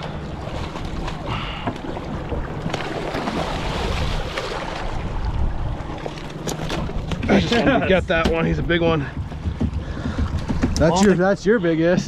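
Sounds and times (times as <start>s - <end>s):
boat motor running: 0.0s - 12.0s
water around hull: 0.0s - 12.0s
sharp clicks and knocks: 9.1s - 11.1s.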